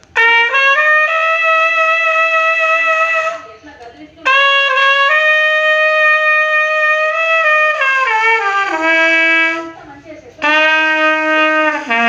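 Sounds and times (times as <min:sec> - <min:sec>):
brass horn playing solo: 0:00.2 - 0:03.3, 0:04.3 - 0:09.7, 0:10.4 - 0:12.0.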